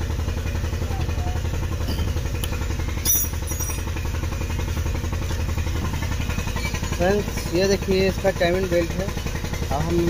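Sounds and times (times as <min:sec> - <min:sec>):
engine idling: 0:00.0 - 0:10.0
metallic clink: 0:03.0 - 0:04.0.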